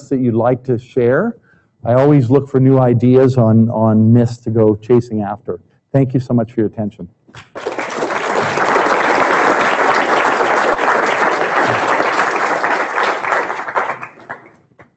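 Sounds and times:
audience applauding: 7.4 - 14.7.

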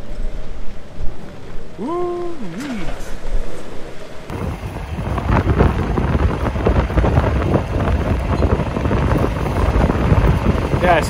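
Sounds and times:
strong gusty wind on microphone: 0.0 - 11.0
trailer curtains flapping and rattling: 4.3 - 11.0.

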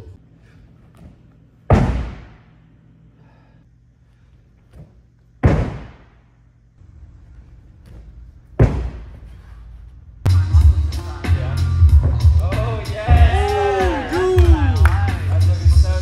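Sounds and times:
heavy slam-like thuds: 1.6 - 2.4, 5.4 - 6.1, 8.5 - 9.3, 11.8 - 12.4.

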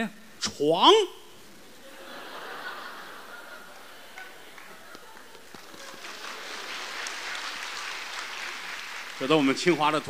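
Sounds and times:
audience laughter: 1.8 - 5.2
applause: 4.1 - 10.0.

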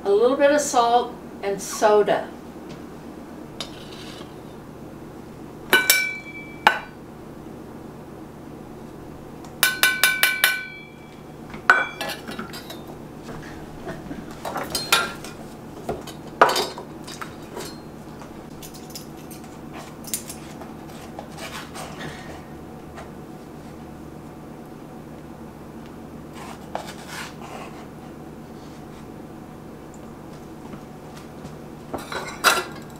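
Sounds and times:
metal kitchenware clinking: 5.8 - 7.0, 9.7 - 11.1, 11.7 - 12.9, 14.5 - 15.4, 32.0 - 32.9.

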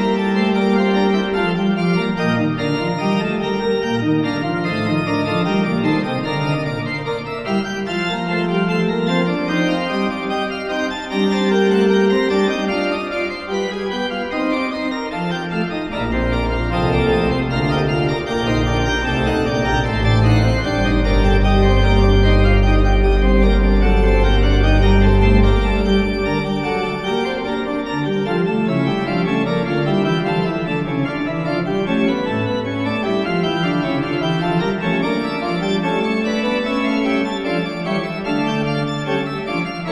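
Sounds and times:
slow organ chords: 15.4 - 35.5.

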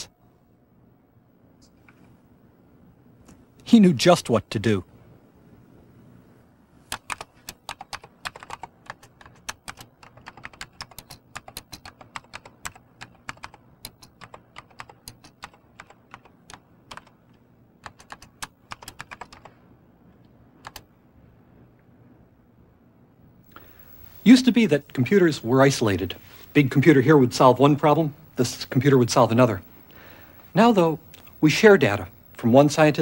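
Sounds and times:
keyboard keystroke clicks: 6.9 - 17.1, 17.8 - 19.5, 20.6 - 20.9.

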